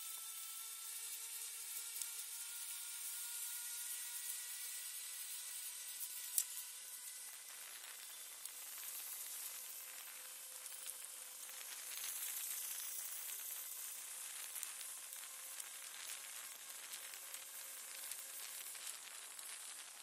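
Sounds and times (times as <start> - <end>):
faint ticks: 6.1 - 6.6.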